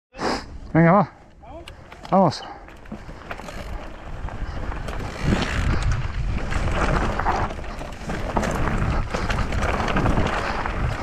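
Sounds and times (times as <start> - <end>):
bike clicks and knocks: 1.5 - 11.0
tyres rolling over gravel: 1.8 - 11.0
wind buffeting microphone: 2.7 - 11.0.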